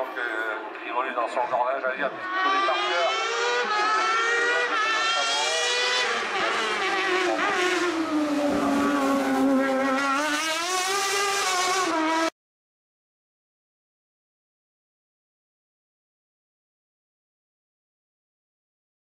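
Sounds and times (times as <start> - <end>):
race car engine at full throttle: 0.0 - 12.4.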